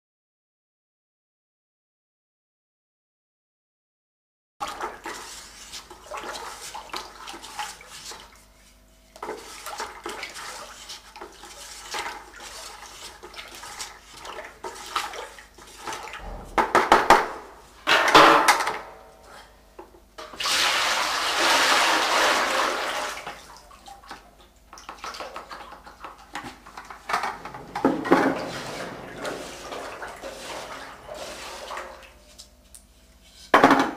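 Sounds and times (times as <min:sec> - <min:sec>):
glaze sloshing in plastic bucket: 0:21.7 - 0:33.2
liquid splashes and knocks: 0:24.7 - 0:32.2.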